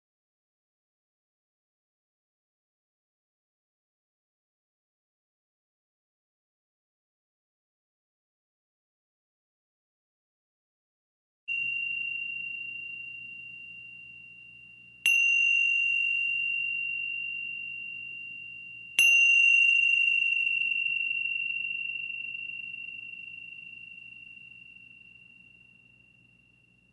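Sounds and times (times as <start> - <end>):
small high-pitched bell ringing: 11.5 - 26.9.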